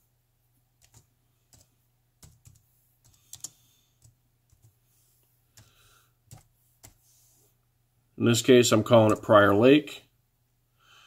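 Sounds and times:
laptop keyboard keystrokes: 0.8 - 4.8, 5.5 - 7.0.

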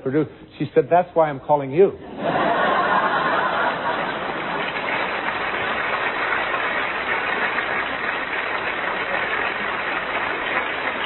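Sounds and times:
audience laughing: 2.1 - 5.3
audience applauding: 2.7 - 11.0.

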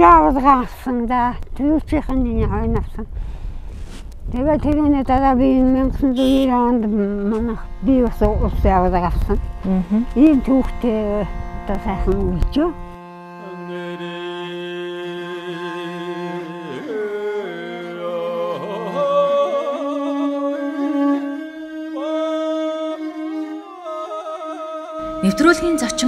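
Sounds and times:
person singing ornamented notes: 13.1 - 26.0
low sustained drone: 25.0 - 26.0.

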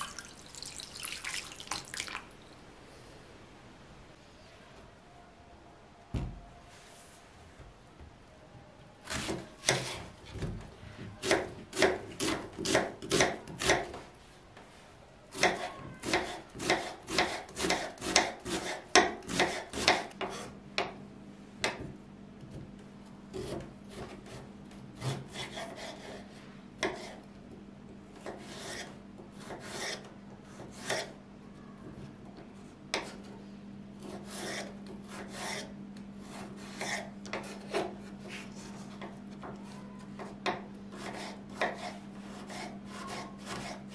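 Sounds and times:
knife chopping on cutting board: 11.2 - 13.9, 40.5 - 43.8.

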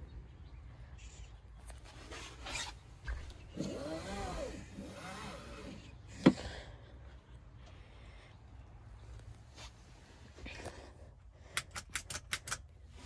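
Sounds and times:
sharp click: 11.6 - 12.7.

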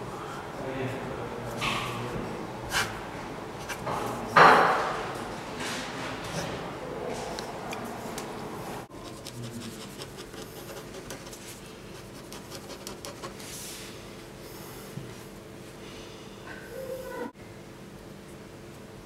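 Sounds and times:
pen scratching on paper: 9.0 - 13.4.

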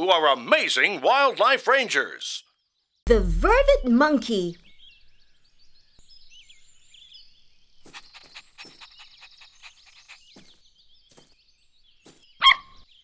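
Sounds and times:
cartoon birdsong chirping: 2.4 - 13.0
cartoon puppy panting: 7.9 - 10.4.

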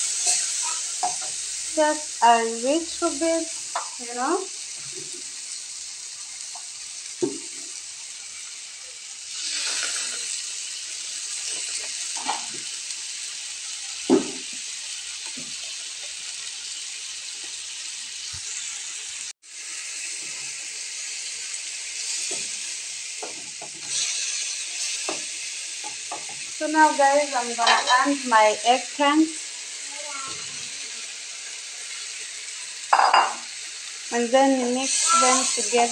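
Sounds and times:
stirring in a pan: 0.0 - 5.4, 22.0 - 29.0
sauce sizzling in a frying pan: 0.0 - 35.9
wooden spatula knocking on pan: 14.1 - 14.5.

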